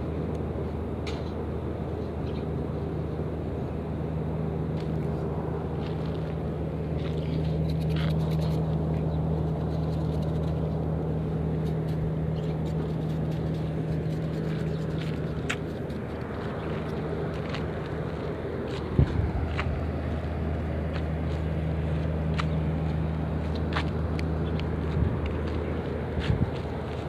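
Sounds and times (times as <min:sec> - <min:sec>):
engine humming steadily: 0:00.0 - 0:27.0.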